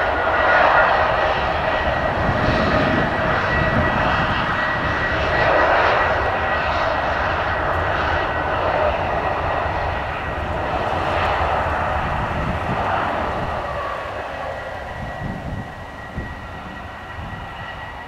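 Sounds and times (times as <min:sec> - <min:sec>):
jet engines taxiing: 0:00.0 - 0:18.0.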